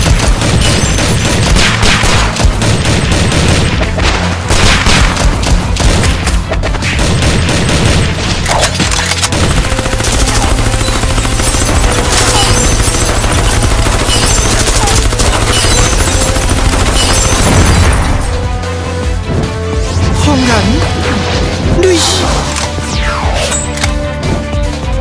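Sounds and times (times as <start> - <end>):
rapid blasts like gunfire: 0.0 - 8.4, 9.3 - 18.2.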